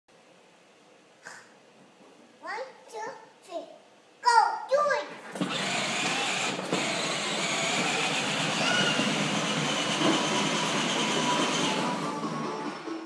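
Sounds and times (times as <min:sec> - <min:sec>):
plastic wheels rumbling: 0:05.1 - 0:12.9
toy car motor whirring: 0:05.3 - 0:12.3.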